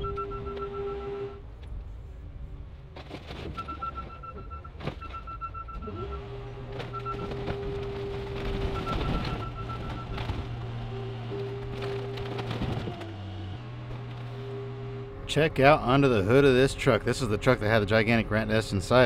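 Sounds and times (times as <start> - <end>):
hydraulics humming: 0.0 - 19.0
sheet metal cracking and crunching: 6.7 - 13.2.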